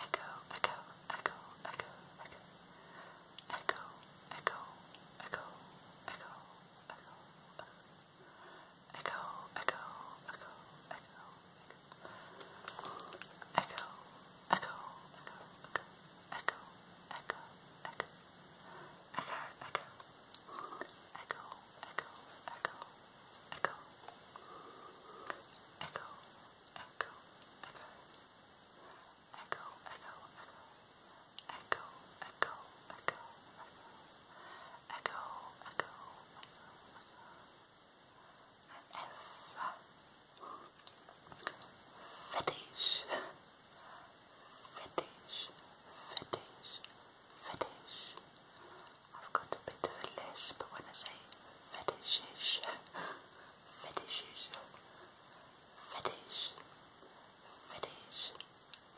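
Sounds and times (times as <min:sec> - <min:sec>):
soft whispering: 0:00.0 - 0:58.9
wet mouth clicks and lip smacks: 0:12.6 - 0:13.9.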